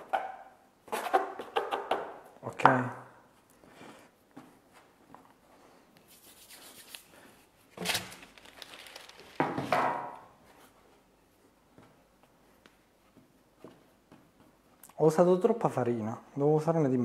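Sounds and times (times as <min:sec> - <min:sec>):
hands rubbing dough: 0:05.3 - 0:09.4.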